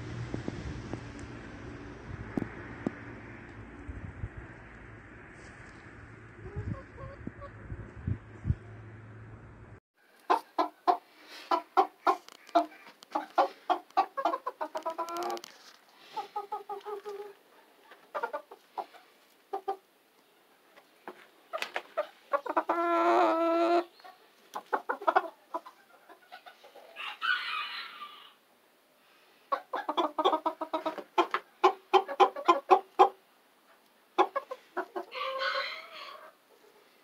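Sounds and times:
chickens clucking: 0:06.4 - 0:07.6, 0:10.1 - 0:28.4, 0:29.4 - 0:37.0
rooster crowing: 0:27.0 - 0:28.4, 0:35.1 - 0:36.3.

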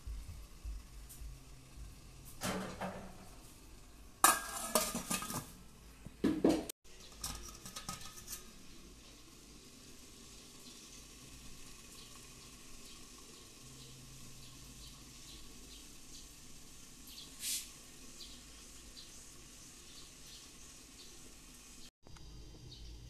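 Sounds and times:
faint steady hiss: 0:00.0 - 0:06.2, 0:07.8 - 0:23.0
metal pot and lid clanking: 0:02.4 - 0:03.4, 0:04.2 - 0:05.7, 0:06.3 - 0:08.7.

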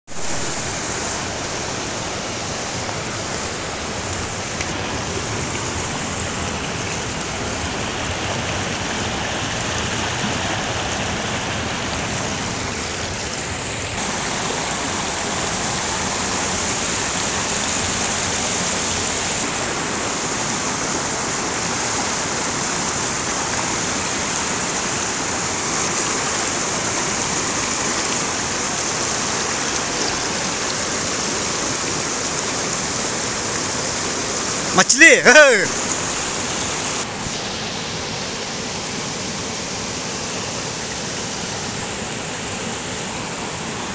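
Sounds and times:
river rushing over rocks: 0:00.1 - 0:43.9.

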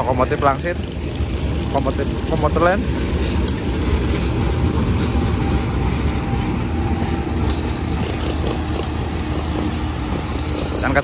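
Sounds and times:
locomotive engine rumble: 0:00.0 - 0:11.0.

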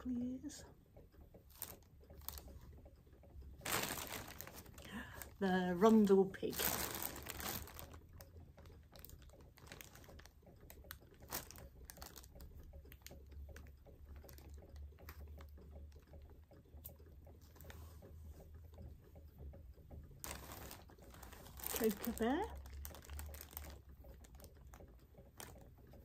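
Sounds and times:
low steady hum: 0:00.0 - 0:26.0
plastic packaging crinkling: 0:01.5 - 0:02.4, 0:03.6 - 0:08.0, 0:08.9 - 0:10.3, 0:11.3 - 0:12.3, 0:20.2 - 0:24.5, 0:25.4 - 0:25.6.

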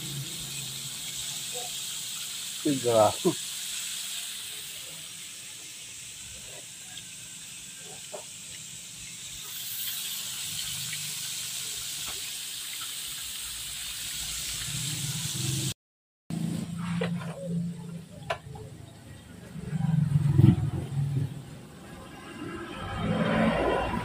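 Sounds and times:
chicken deep-frying in oil: 0:00.0 - 0:15.8.

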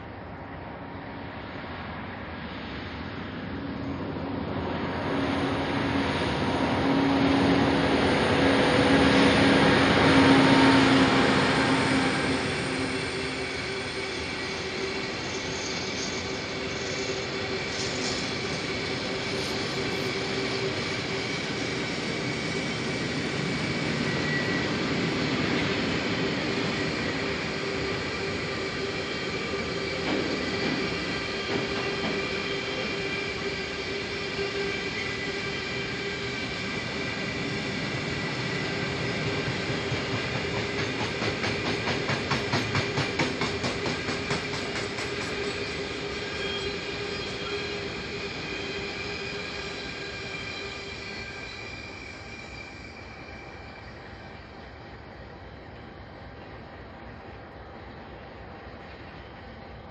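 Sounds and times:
freight train rolling past: 0:00.0 - 0:59.9
train wheel squeal: 0:00.0 - 0:59.9
wheels clacking over rail joint: 0:39.8 - 0:45.8.

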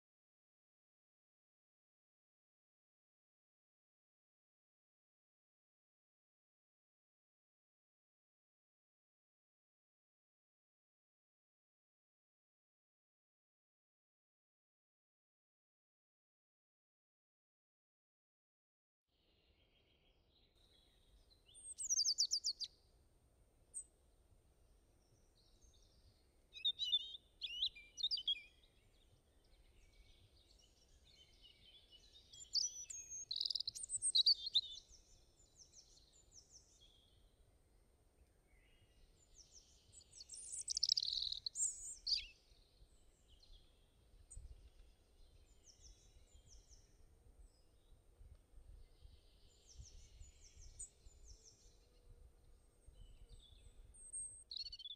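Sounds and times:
small birds chirping: 0:19.2 - 0:22.8, 0:24.9 - 0:37.4, 0:38.0 - 0:54.9.

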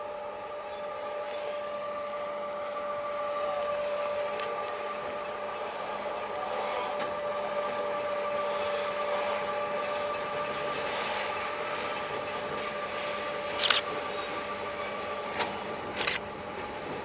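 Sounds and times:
diesel locomotive engine hum: 0:00.0 - 0:17.0.

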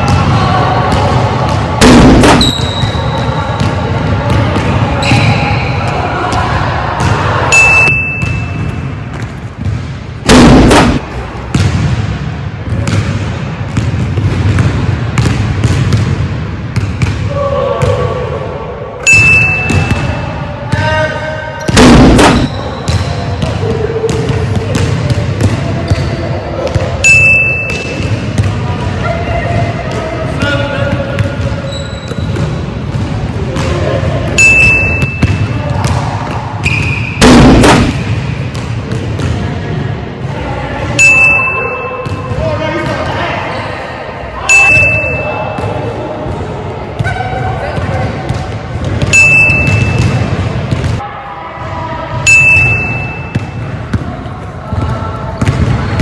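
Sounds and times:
basketball bouncing: 0:00.0 - 0:05.3, 0:08.0 - 0:12.1, 0:12.7 - 0:17.3, 0:19.6 - 0:20.1, 0:21.6 - 0:28.6, 0:30.8 - 0:39.4, 0:42.0 - 0:42.4, 0:47.8 - 0:51.0, 0:53.0 - 0:56.0
sneakers squeaking on wood floor: 0:02.4 - 0:03.7, 0:05.0 - 0:05.7, 0:31.2 - 0:32.6, 0:36.6 - 0:37.2.

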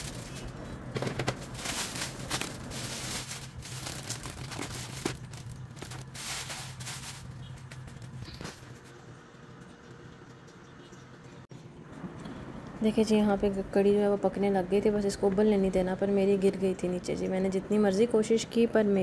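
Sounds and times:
plastic packaging crinkling: 0:00.0 - 0:08.8.

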